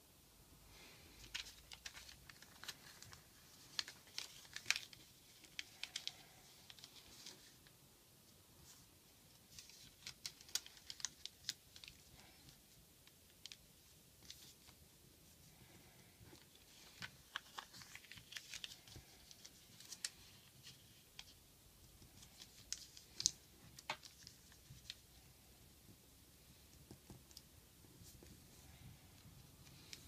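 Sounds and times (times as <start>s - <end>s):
paper crinkling while folded: 1.1s - 7.8s, 8.6s - 25.3s.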